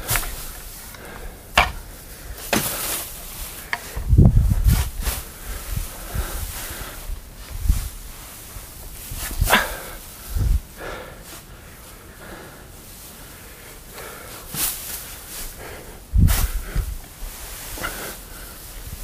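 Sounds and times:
dull low thumps: 3.9s - 6.3s.

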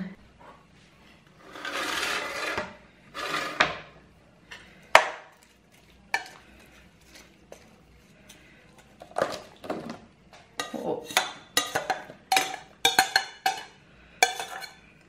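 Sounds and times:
food sliding out of a bowl: 1.3s - 4.0s
kitchenware clinks and knocks: 10.6s - 14.8s.

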